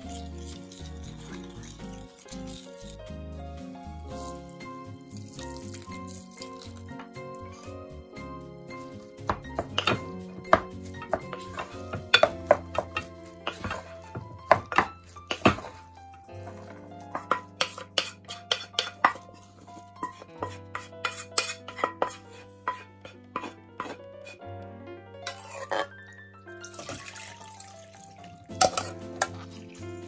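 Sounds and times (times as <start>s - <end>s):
background music: 0.0s - 30.0s
wooden paddle knocking pot: 9.2s - 15.8s
metal pan clinking strainer: 17.2s - 19.2s, 28.5s - 29.6s.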